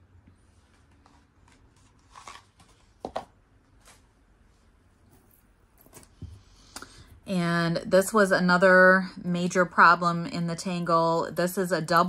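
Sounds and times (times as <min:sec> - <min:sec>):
jewelry clicking and rustling: 0:05.0 - 0:07.1.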